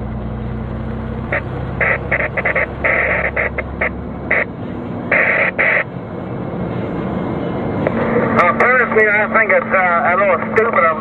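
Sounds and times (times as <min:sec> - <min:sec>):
diesel engine running: 0:00.0 - 0:11.0
radio static bursts: 0:01.3 - 0:04.5, 0:05.1 - 0:05.9, 0:08.4 - 0:11.0.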